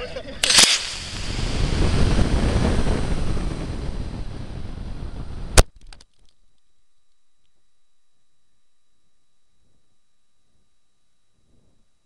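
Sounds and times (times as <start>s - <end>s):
rocket motor rushing: 0.2s - 5.6s
ejection charge bang: 0.4s - 5.7s.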